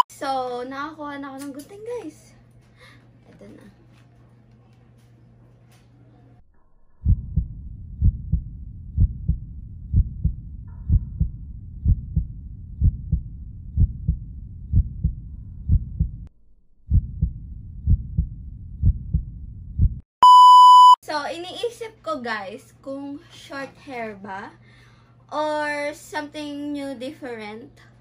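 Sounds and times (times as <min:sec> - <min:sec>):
heartbeat: 0:07.0 - 0:16.3, 0:16.9 - 0:20.0.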